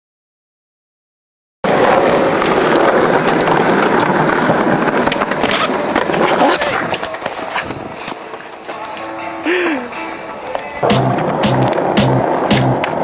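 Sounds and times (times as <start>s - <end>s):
skateboard wheels rolling on pavement: 1.6s - 13.0s
skateboard clacking on concrete: 1.7s - 13.0s.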